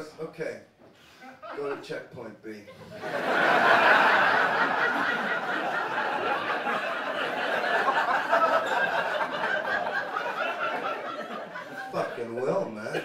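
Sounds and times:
audience laughing: 2.7 - 13.0.

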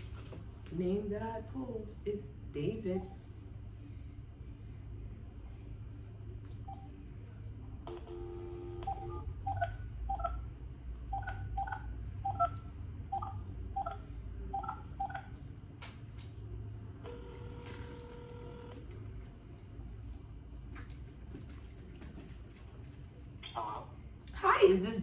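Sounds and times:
phone dial tone: 8.0 - 9.3, 17.1 - 18.9.

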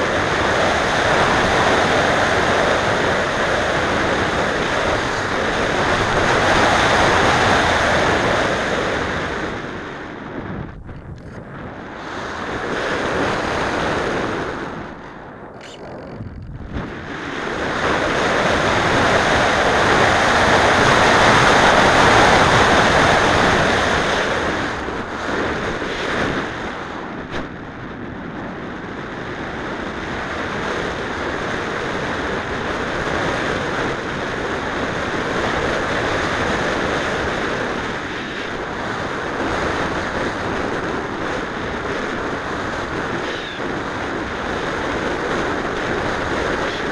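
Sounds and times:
air rushing over microphone: 9.2 - 19.1.

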